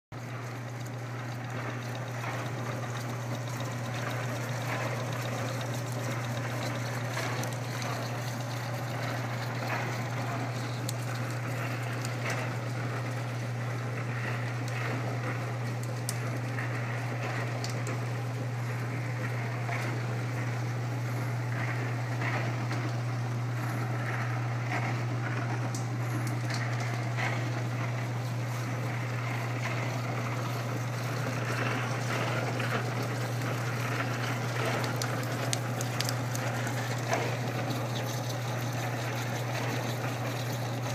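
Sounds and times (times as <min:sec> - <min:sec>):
tumbler swishing with ticks: 0:00.2 - 0:12.9, 0:25.7 - 0:40.9
motor humming: 0:00.2 - 0:40.9.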